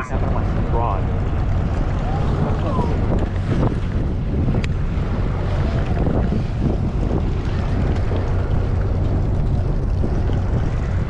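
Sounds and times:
boat engine rumbling: 0.0s - 11.0s
wind on microphone: 0.0s - 11.0s.

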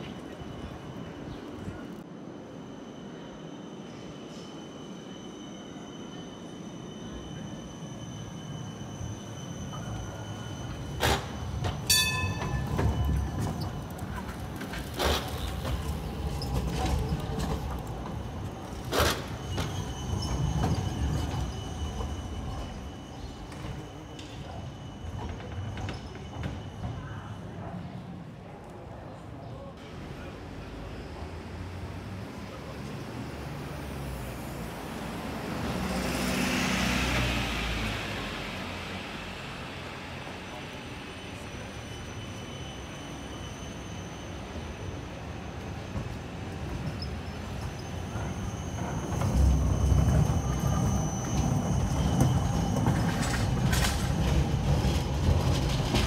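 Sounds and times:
tram wheels rumbling on rails: 4.3s - 56.0s
sharp metallic clanks: 11.8s - 13.2s
passing vehicle engine and tyres: 31.1s - 40.0s.

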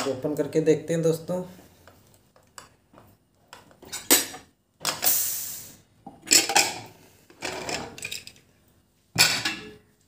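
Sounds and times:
steam hissing from pressure cooker: 5.0s - 5.8s
metal lid clanking and scraping: 6.3s - 8.2s, 9.2s - 9.8s.

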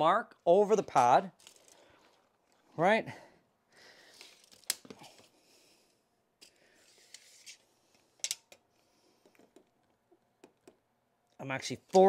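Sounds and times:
tape measure rubbing and scraping: 6.8s - 7.7s.

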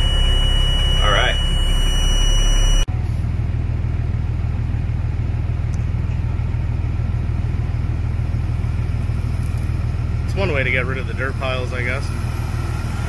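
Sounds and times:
diesel truck engine running: 0.0s - 13.0s.

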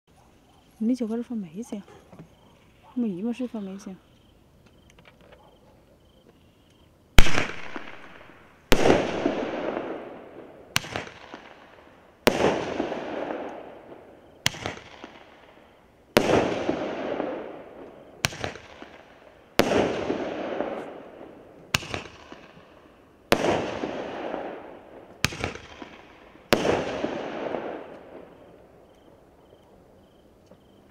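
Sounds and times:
crackling hiss of fireworks: 6.2s - 30.9s
firework bangs: 7.2s - 28.5s.

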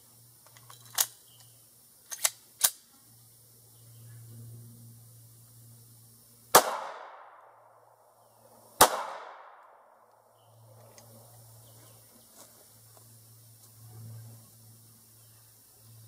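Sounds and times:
pistol shots with echo: 6.5s - 7.6s, 8.8s - 10.0s.

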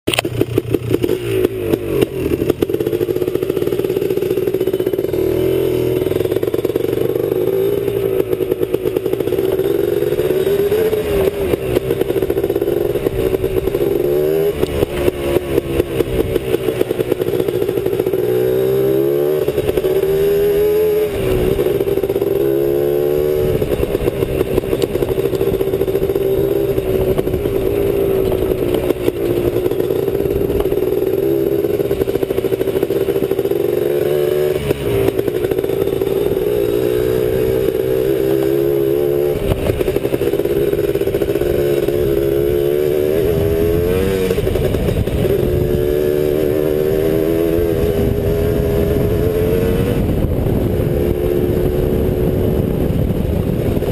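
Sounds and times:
quad engine revving: 0.1s - 53.9s.

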